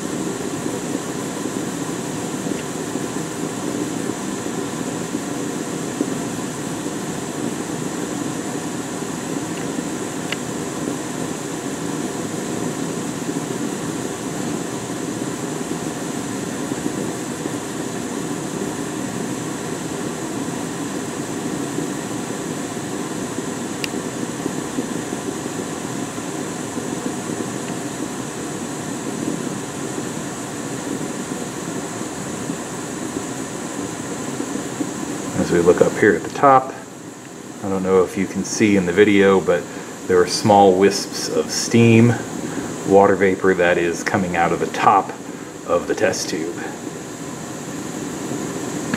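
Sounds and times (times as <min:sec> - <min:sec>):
gas burner flame rushing: 0:00.0 - 0:48.9.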